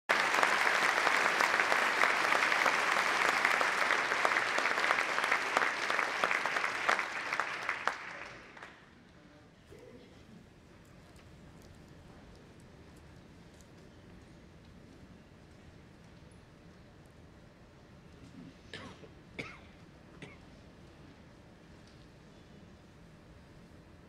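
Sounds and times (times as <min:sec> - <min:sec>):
audience applauding: 0:00.1 - 0:08.9.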